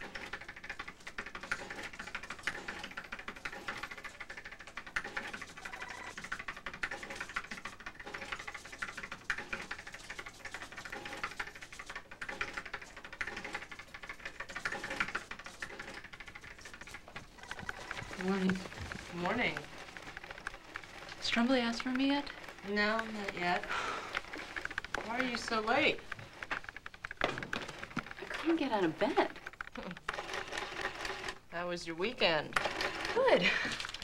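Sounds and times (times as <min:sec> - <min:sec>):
typewriter keys clattering: 0:00.0 - 0:31.4, 0:32.6 - 0:34.0.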